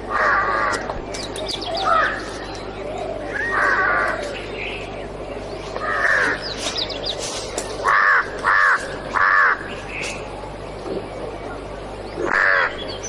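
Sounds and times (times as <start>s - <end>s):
crow cawing: 5.8s - 6.4s, 7.8s - 9.7s, 12.3s - 12.8s.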